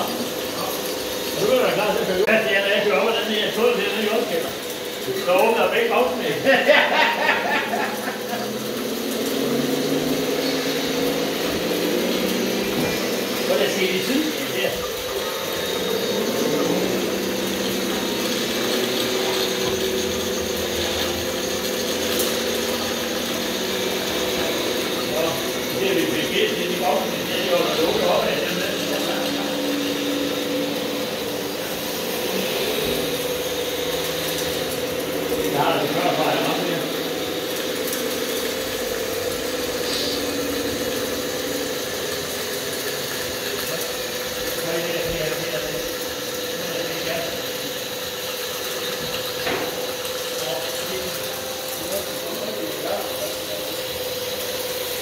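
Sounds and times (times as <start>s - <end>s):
electric motor geared whine: 0.0s - 55.0s
model loader mechanical hum: 7.7s - 46.4s.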